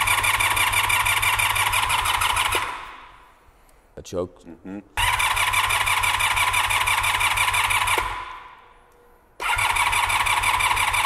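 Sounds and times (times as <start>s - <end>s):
engine cranking on starter: 5.0s - 8.2s, 9.4s - 11.0s.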